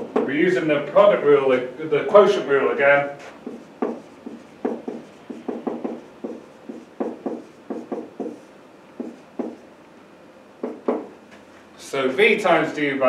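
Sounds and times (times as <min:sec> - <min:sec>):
marker squeaking on whiteboard: 0:03.2 - 0:09.6.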